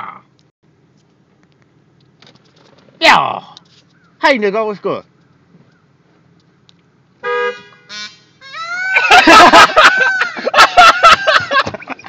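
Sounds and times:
car horn beeping: 7.2 - 8.6
loud rising and falling calls: 7.9 - 10.5.

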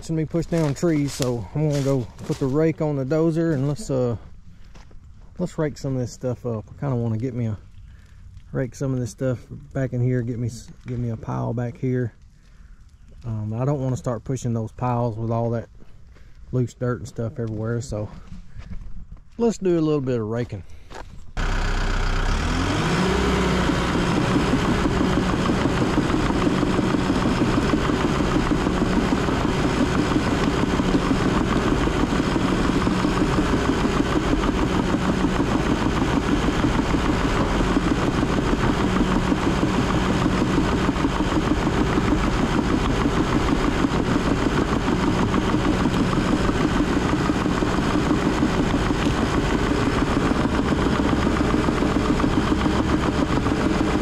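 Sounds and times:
bulldozer diesel engine: 0.0 - 18.7, 21.3 - 54.0.

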